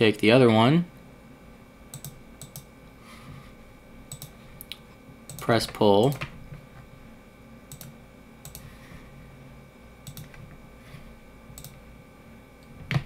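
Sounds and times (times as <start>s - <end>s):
computer mouse clicking: 1.9s - 2.7s, 4.1s - 6.3s, 7.7s - 8.7s, 10.0s - 10.4s, 11.6s - 11.8s.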